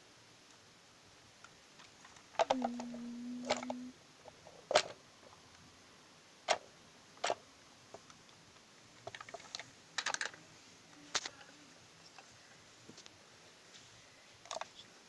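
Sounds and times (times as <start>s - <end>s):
plastic toy parts clicking: 2.4s - 3.8s, 9.0s - 10.4s, 11.1s - 11.4s.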